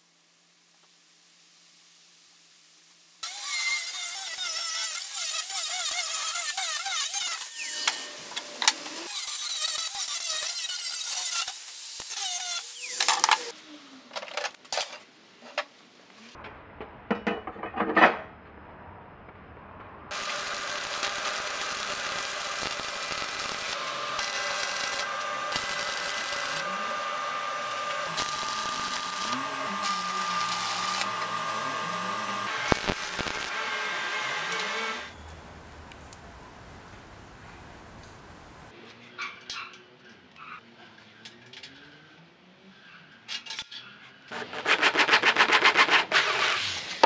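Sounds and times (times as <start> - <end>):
arc welding crackling hiss: 0.0 - 13.6, 20.1 - 33.6
angle grinder cutting steel: 3.2 - 13.5, 20.1 - 35.1.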